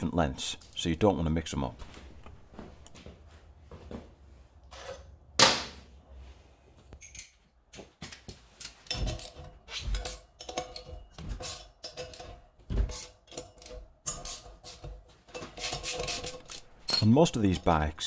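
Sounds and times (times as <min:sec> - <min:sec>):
metal clinks of hand tools: 0:16.5 - 0:17.8.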